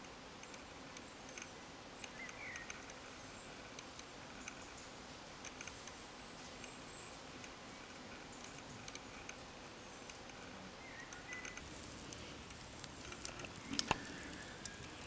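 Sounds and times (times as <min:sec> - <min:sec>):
faint steady hiss: 0:00.0 - 0:15.0
small ticks: 0:00.0 - 0:15.0
bird chirp: 0:00.4 - 0:03.6, 0:09.7 - 0:11.6.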